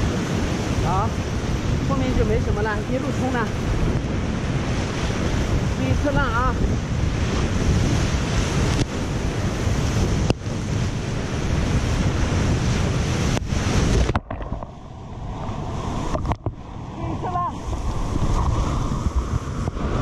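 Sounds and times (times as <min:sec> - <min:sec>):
whitewater rapids rushing: 0:12.8 - 0:20.0.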